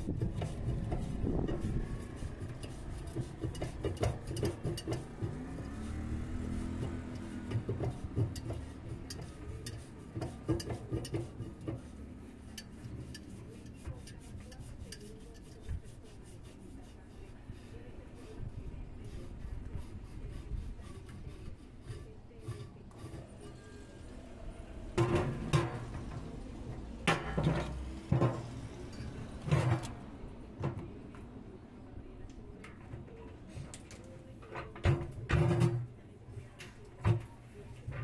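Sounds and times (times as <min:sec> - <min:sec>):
socket wrench clinking and scraping: 0:03.4 - 0:05.3.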